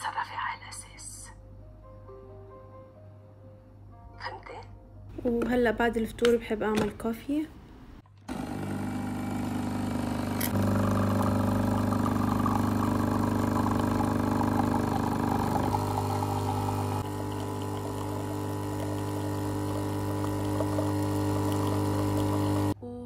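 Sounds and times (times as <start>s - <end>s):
coffee machine pump humming: 8.2s - 22.8s.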